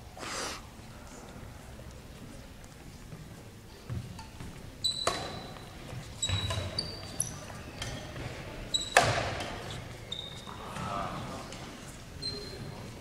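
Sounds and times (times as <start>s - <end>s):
shoes squeaking on floor: 3.1s - 11.0s, 12.1s - 13.0s
racket hitting shuttlecock: 8.9s - 9.6s.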